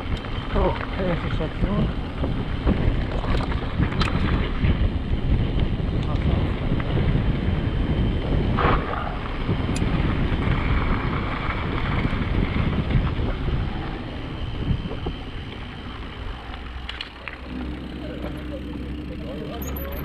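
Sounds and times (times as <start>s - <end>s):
bike clicks and knocks: 0.0s - 4.7s, 14.7s - 17.7s
wind buffeting microphone: 0.0s - 19.5s.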